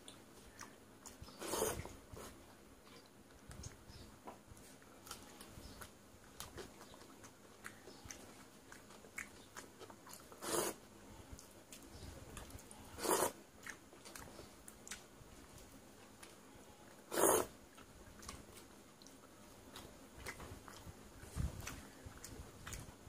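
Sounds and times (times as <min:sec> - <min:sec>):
chewing: 0:00.0 - 0:23.0
wet clicks of hand mixing rice: 0:11.3 - 0:12.8.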